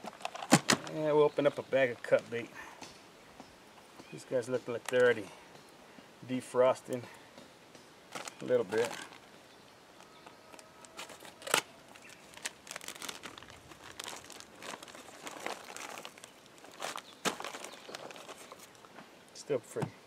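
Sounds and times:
plastic bag crinkling and rustling: 0.0s - 1.4s, 8.1s - 9.3s, 10.0s - 18.9s.

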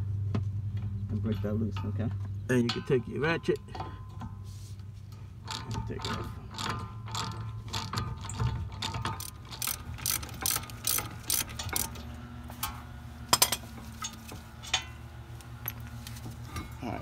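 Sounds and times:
socket ratchet clicking: 5.5s - 12.0s.

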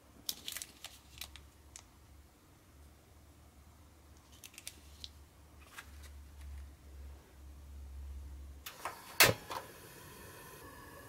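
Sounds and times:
plastic packaging clicks and rustles: 0.2s - 1.9s, 4.2s - 6.7s.

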